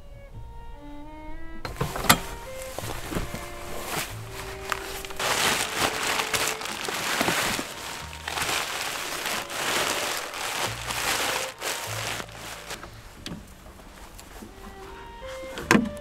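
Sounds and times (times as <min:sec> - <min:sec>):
nylon fabric rustling: 0:01.7 - 0:16.0.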